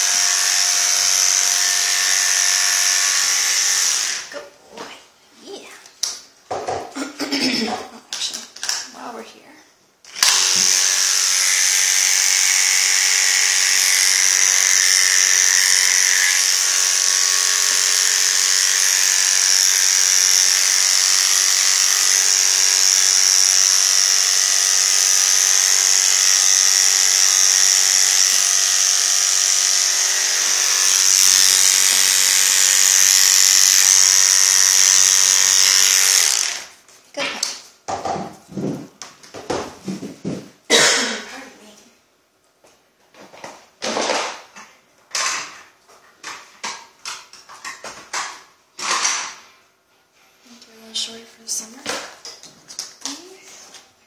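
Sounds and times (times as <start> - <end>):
electric pet clippers buzzing: 0.0 - 4.3, 10.1 - 36.8.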